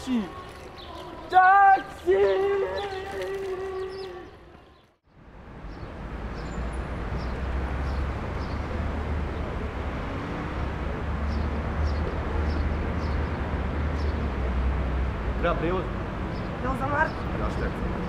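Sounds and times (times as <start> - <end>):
street rumble and hiss: 4.4 - 18.0.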